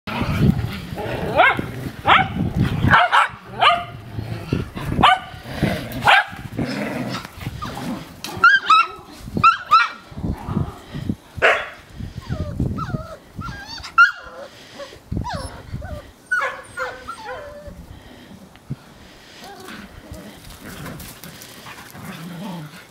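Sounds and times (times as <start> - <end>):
puppies yapping and squealing: 8.4 - 10.1, 11.5 - 17.8.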